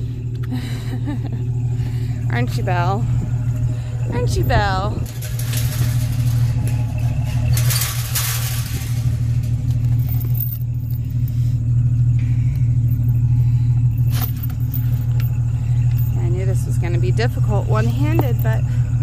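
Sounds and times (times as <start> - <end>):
low engine hum: 0.0 - 19.0
rustling: 5.0 - 11.5.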